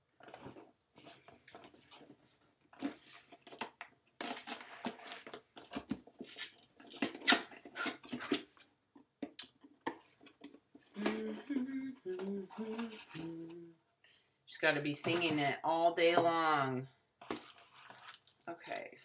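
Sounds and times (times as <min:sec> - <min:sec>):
cardboard packaging rustling: 0:17.2 - 0:18.5.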